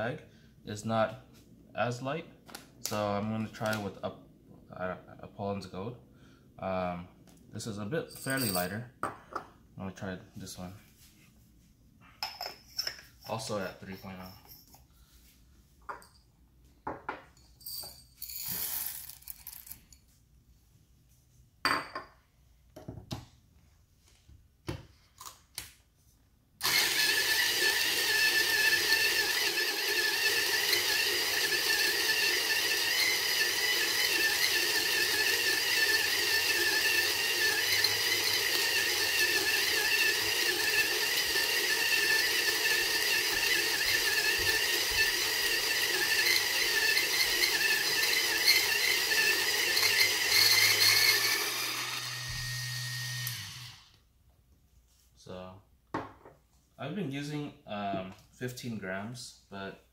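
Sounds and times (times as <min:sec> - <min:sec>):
electric coffee grinder whirring: 0:26.6 - 0:54.0.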